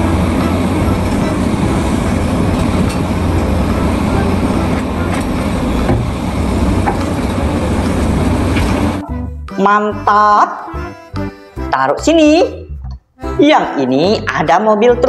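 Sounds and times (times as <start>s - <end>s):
excavator diesel engine running: 0.0s - 9.2s.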